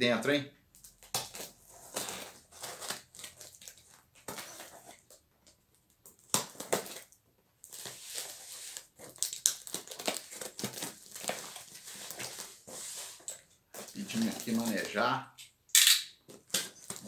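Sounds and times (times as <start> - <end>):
tape crinkling: 0.7 - 15.0, 16.2 - 17.0
knife scraping packing tape: 1.1 - 3.5.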